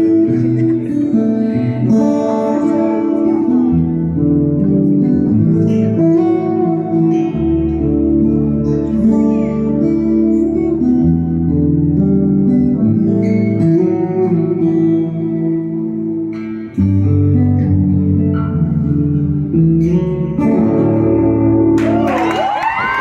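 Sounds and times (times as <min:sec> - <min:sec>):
acoustic guitar playing: 0:00.0 - 0:23.0
crowd cheering and shouting: 0:21.8 - 0:23.0.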